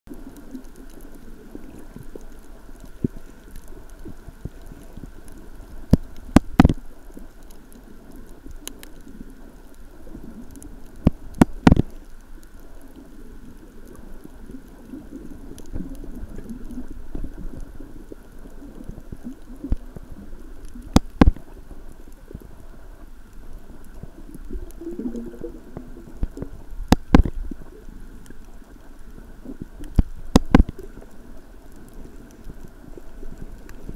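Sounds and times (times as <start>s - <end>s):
underwater rumble: 0.1s - 33.9s
sharp clicks and knocks: 29.8s - 30.8s.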